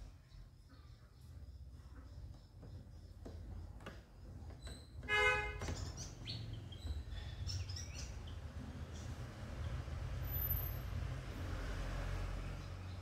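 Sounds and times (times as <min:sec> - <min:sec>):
bird chirps: 0:00.1 - 0:10.8
horn toot: 0:05.1 - 0:05.6.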